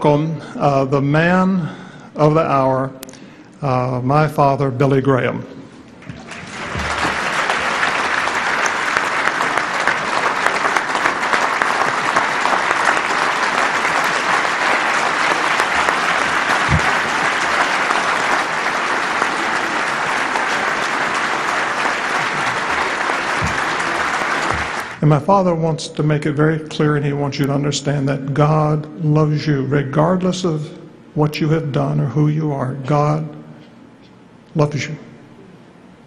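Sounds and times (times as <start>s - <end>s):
large audience applauding: 6.0s - 25.0s.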